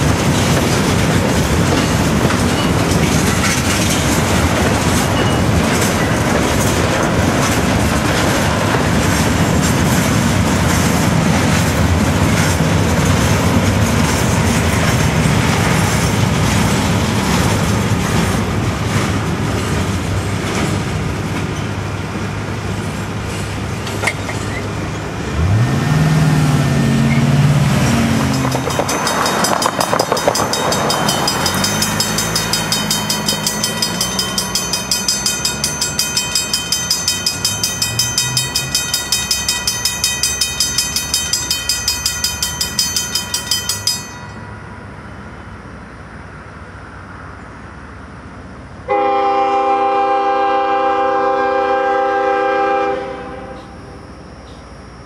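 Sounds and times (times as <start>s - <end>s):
crossing bell ringing: 0.0s - 11.8s, 27.1s - 45.8s
engine revving: 25.3s - 28.6s
freight car wheels clattering: 27.8s - 44.4s.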